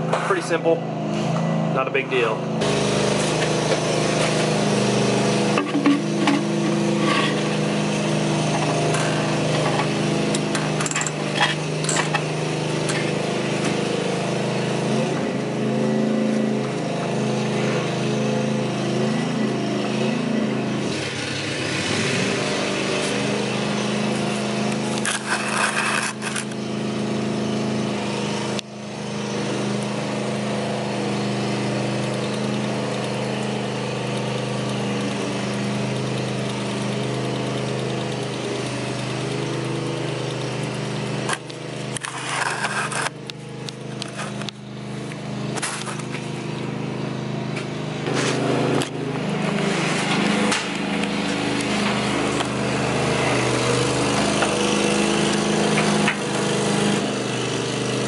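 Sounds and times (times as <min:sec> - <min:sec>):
lawn mower engine running: 0:00.0 - 0:58.0.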